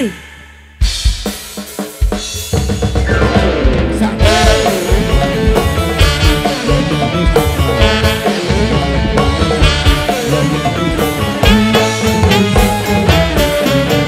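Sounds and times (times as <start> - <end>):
live band playing: 0.0 - 14.0
wavering melodic lead line: 3.0 - 14.0.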